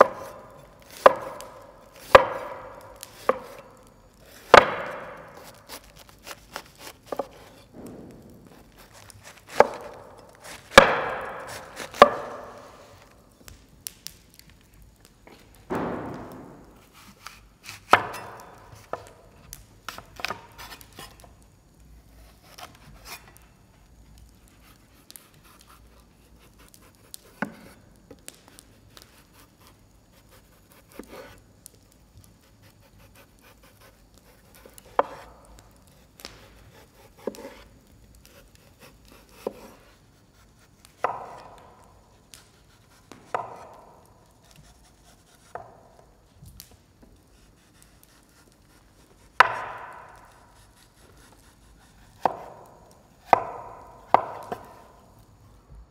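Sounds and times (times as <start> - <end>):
knife chopping on cutting board: 0.0 - 3.6, 4.4 - 7.9, 8.5 - 13.1, 15.8 - 19.1, 34.4 - 35.4, 36.5 - 37.6, 38.3 - 39.9, 41.0 - 41.6, 42.6 - 43.9, 44.6 - 45.8, 49.2 - 50.4, 51.3 - 54.9.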